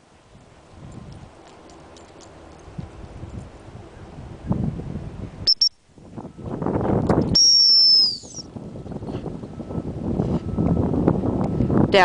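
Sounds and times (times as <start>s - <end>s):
dog training whistle: 5.5s - 5.8s, 7.3s - 8.5s.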